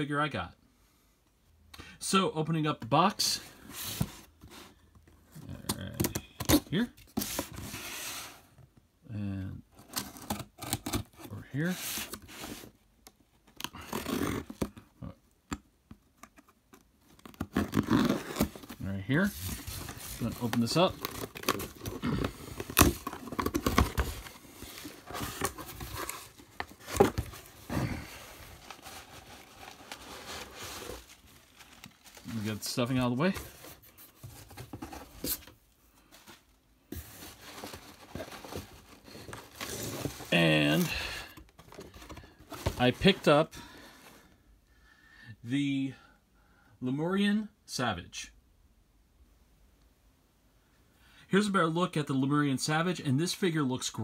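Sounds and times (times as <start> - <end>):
cardboard rustling and crinkling: 3.0 - 8.6, 15.9 - 44.3.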